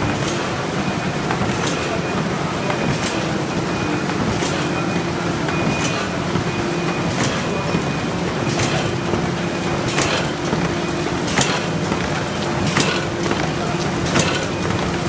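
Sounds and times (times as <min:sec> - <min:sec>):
machine hum of belts and rollers: 0:00.0 - 0:15.0
sharp mechanical clack: 0:09.9 - 0:10.4, 0:11.3 - 0:11.8, 0:12.6 - 0:13.4, 0:14.0 - 0:14.6.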